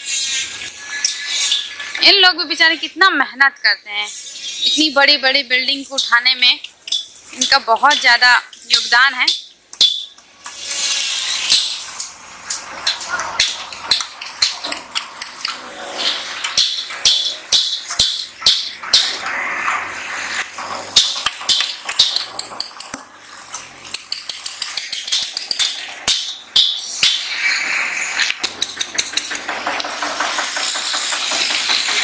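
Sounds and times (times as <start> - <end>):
sharp knocks and clicks: 11.5 - 15.6, 28.2 - 32.0
steady machine noise: 27.4 - 32.0.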